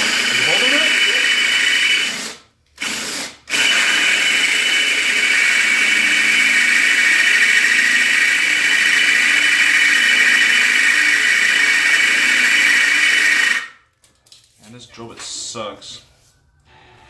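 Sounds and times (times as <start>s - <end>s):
high-pitched squeal of drill bit: 0.0s - 2.1s
cordless drill boring through metal: 0.0s - 13.7s.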